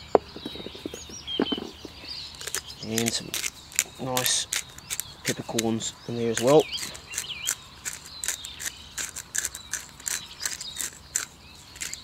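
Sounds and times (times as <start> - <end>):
pepper mill grinding clicks: 2.4 - 12.0.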